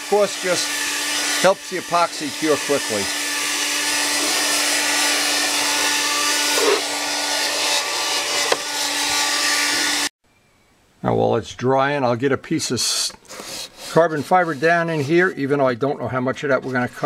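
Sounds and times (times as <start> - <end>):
hair dryer running: 0.0 - 10.1.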